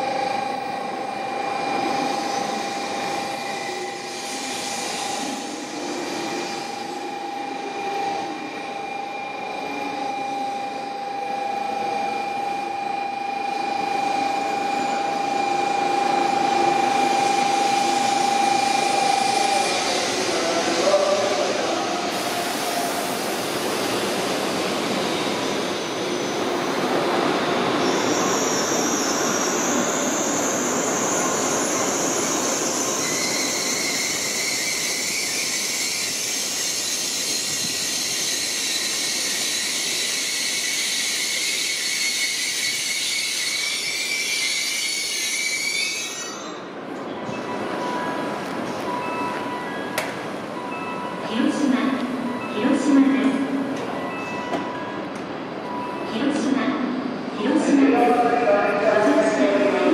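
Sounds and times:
high steady squeal: 27.8s - 46.6s.

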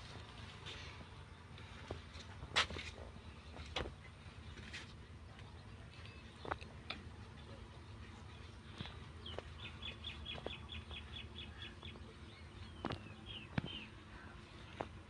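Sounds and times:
bird chirping: 7.3s - 14.8s.

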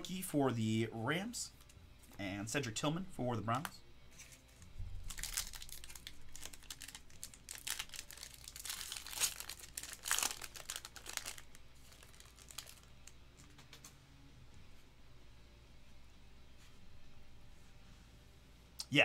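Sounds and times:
foil wrapper crinkling: 5.0s - 13.6s.

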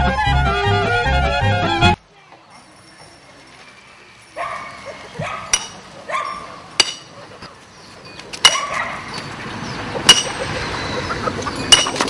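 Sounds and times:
steady outdoor hiss: 1.9s - 12.0s.

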